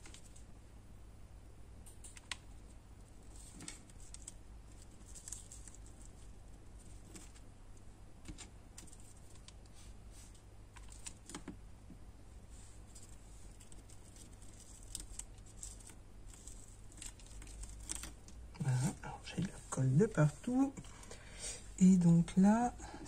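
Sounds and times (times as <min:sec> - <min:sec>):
faint low hum: 0:00.0 - 0:23.0
paper and wood pieces clicking: 0:03.3 - 0:07.5, 0:13.0 - 0:18.4.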